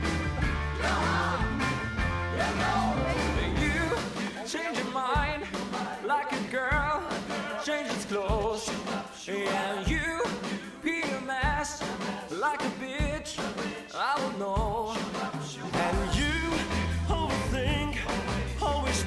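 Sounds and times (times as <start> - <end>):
rock music with strong bass: 0.0 - 9.1, 14.6 - 19.0.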